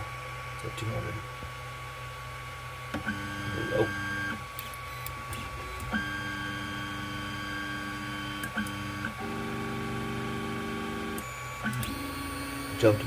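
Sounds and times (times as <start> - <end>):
steady hum: 0.0 - 13.0
stepper motors whining: 3.0 - 10.2, 11.0 - 13.0.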